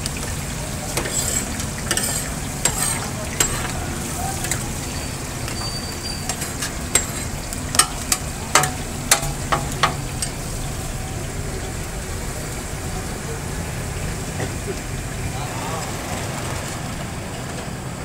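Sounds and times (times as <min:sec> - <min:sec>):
meat sizzling in oil: 0:00.0 - 0:12.8
metal spatula scraping pan: 0:01.0 - 0:04.8, 0:05.5 - 0:08.2.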